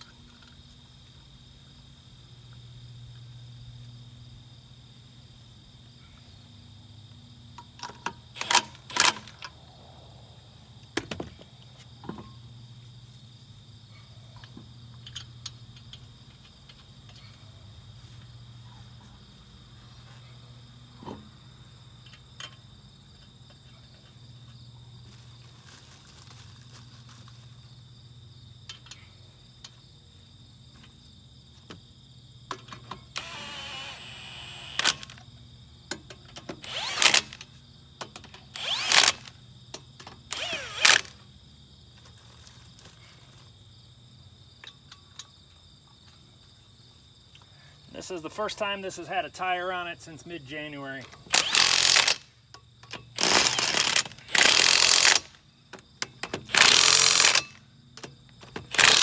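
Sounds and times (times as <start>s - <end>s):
insects chirping: 0.0s - 59.0s
cordless impact wrench: 7.8s - 9.4s, 33.1s - 35.2s, 36.4s - 37.5s, 38.1s - 39.4s, 40.3s - 41.2s, 51.2s - 52.3s, 52.9s - 55.4s, 56.2s - 57.6s, 58.5s - 59.0s.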